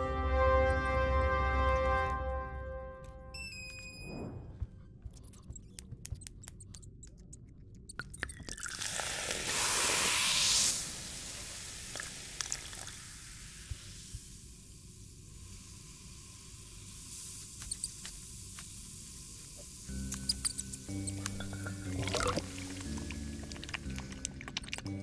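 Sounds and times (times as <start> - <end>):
liquid pouring into glass flask: 8.2 - 9.9, 11.9 - 13.0, 21.2 - 25.0.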